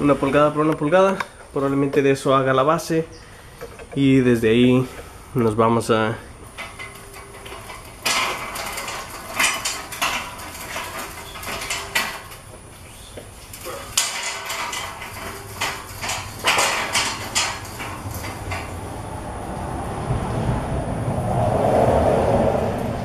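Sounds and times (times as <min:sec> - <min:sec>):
steel tubing clanking on a metal rack: 0:06.5 - 0:12.6, 0:13.4 - 0:18.8.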